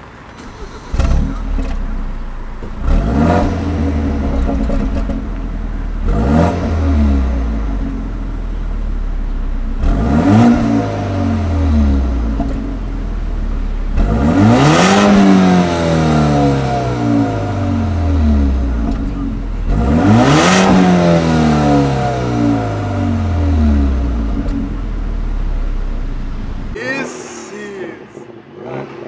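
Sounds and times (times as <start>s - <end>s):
car engine starting and revving: 0.0s - 29.0s.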